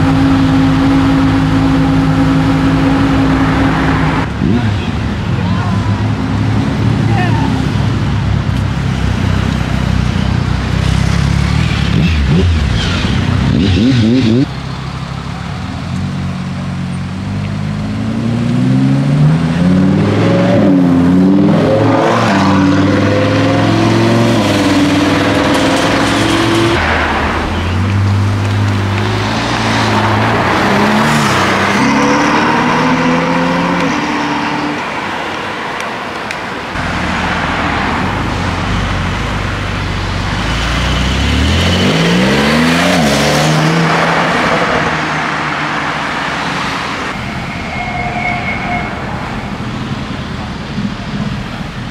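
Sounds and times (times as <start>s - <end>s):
sports cars accelerating: 17.0s - 36.0s, 40.1s - 47.9s.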